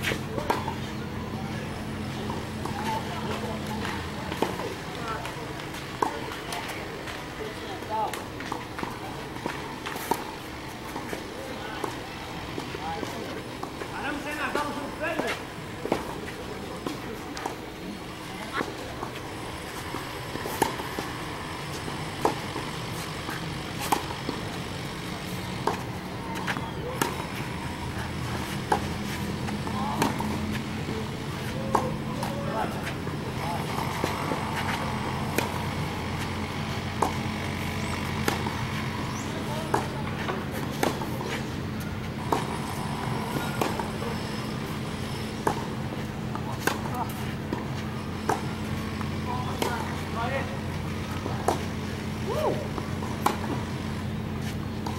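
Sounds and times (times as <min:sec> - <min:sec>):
racket striking tennis ball: 0:00.0 - 0:00.8, 0:18.5 - 0:51.9, 0:52.6 - 0:54.9
tennis ball bounces: 0:00.0 - 0:12.0, 0:12.6 - 0:17.7, 0:18.4 - 0:54.9
steady low hum: 0:00.0 - 0:54.9.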